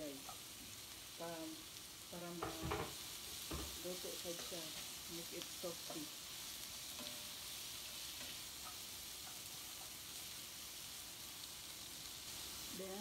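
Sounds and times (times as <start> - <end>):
vegetables sizzling in a frying pan: 0.0 - 13.0
spatula scraping and tapping: 6.9 - 10.0.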